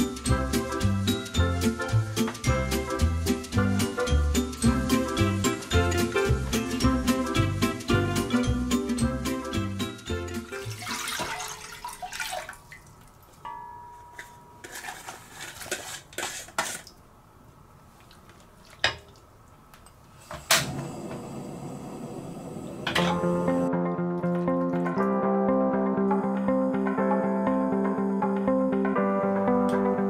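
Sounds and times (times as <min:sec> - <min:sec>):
gas burner hissing: 0:20.1 - 0:23.7.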